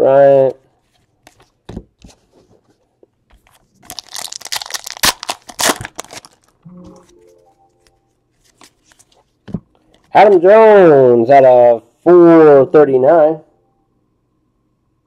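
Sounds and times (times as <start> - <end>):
foil wrapper crinkling: 3.5 - 6.6
pack being torn open: 3.8 - 6.6.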